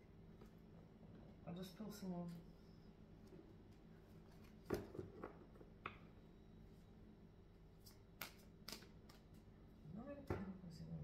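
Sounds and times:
cards tapping and flicking: 7.8 - 9.4.

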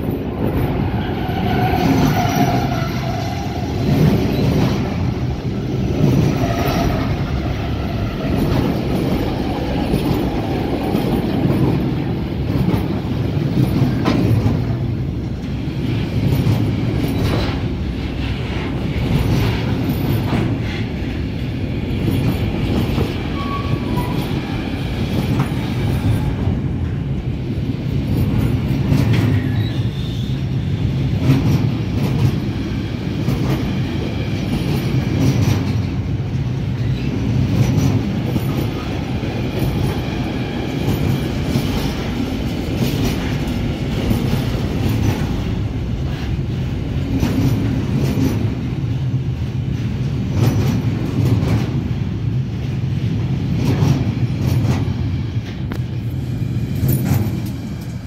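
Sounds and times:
wheels rumbling on rails: 0.0 - 58.0
wheels clicking over rail joints: 56.8 - 58.0.

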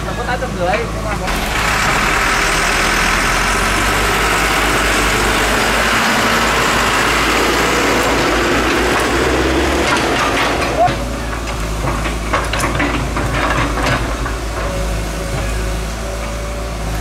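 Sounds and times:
heavy machinery engine running: 0.0 - 17.0
low hum: 1.3 - 5.8.

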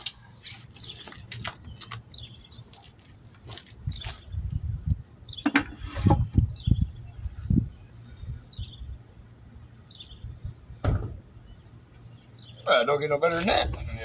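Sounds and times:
wheel knocking and rustling: 0.0 - 4.6
birds chirping: 0.0 - 5.8, 6.4 - 13.6.

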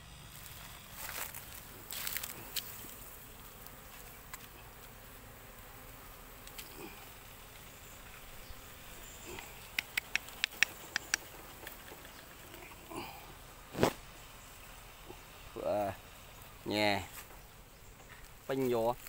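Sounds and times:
bees buzzing: 0.0 - 19.0
sharp clicks: 9.4 - 12.2.

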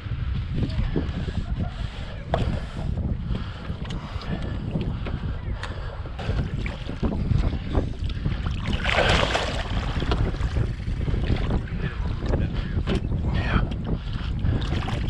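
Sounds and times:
wind buffeting microphone: 0.0 - 15.0
fish splashing in net: 8.7 - 9.7.

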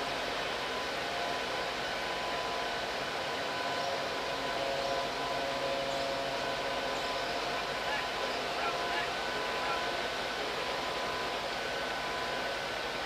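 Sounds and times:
faint constant whine: 0.0 - 13.0.

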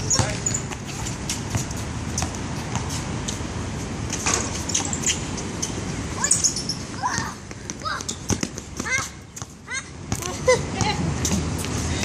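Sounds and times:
basketball bouncing: 7.1 - 11.0.

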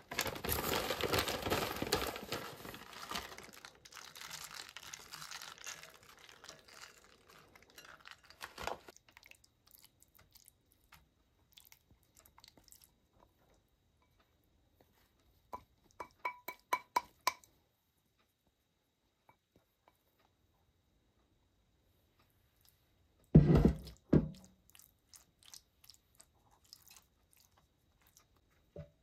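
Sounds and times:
crinkling handling noise: 0.0 - 9.3.

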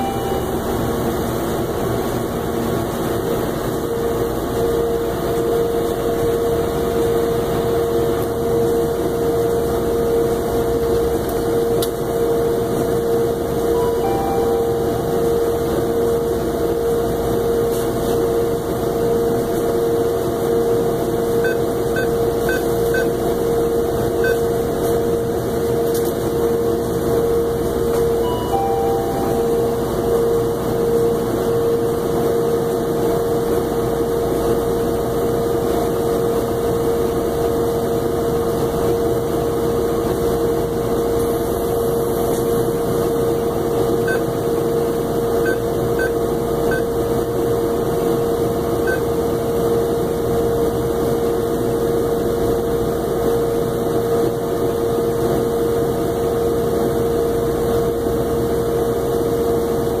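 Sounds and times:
faint keypad beeps: 0.0 - 0.7, 13.7 - 15.8, 21.4 - 23.2, 24.2 - 24.6, 27.9 - 31.2, 45.4 - 46.9, 48.9 - 49.1
steady mechanical hum: 0.0 - 60.0.

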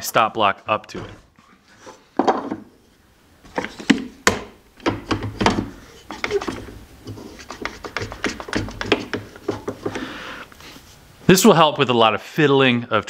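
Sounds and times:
wooden knocks: 2.2 - 2.7, 3.5 - 6.7, 7.4 - 10.1.

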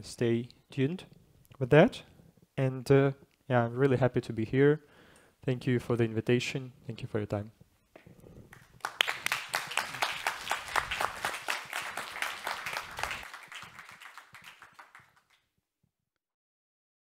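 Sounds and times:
audience applauding: 8.5 - 15.4.

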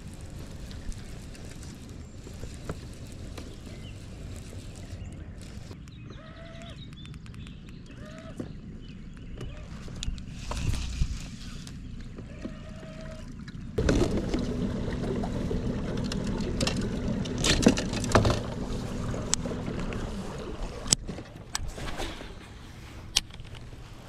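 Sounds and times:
kayak pedal drive humming: 8.4 - 22.3
water noise: 9.8 - 24.0.

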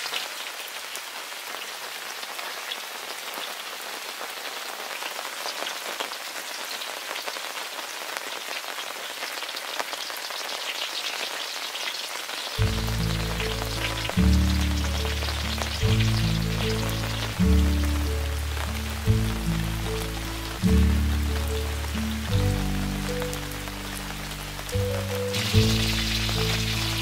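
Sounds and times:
oil sizzling in a wok: 0.0 - 27.0
background music: 12.6 - 27.0.

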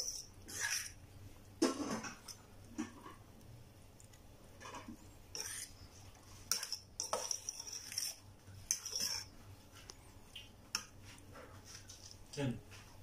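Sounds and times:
fork scraping batter in a metal pan: 0.0 - 1.0, 4.6 - 9.4.

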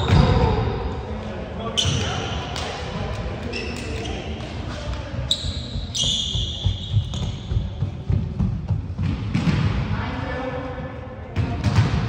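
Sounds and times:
players' voices echoing: 0.0 - 12.0
shoe squeaks: 3.4 - 4.4, 5.2 - 7.9.

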